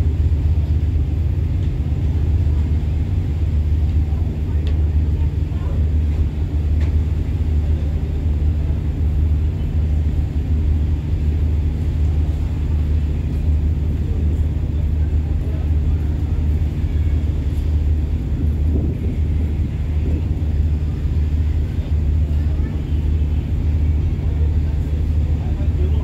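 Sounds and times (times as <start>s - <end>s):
ferry engines droning: 0.0s - 26.0s.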